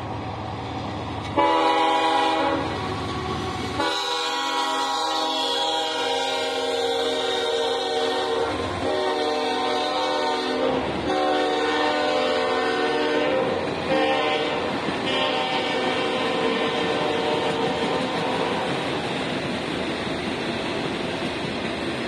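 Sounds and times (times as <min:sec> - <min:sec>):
rail cars rumbling past: 0:00.0 - 0:22.0
locomotive air horn blasts: 0:01.3 - 0:18.8.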